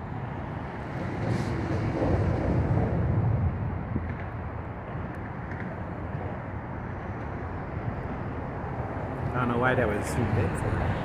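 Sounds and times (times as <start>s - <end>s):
passing vehicle rumble: 0.0s - 11.0s
traffic: 0.0s - 11.0s
wind: 0.0s - 11.0s.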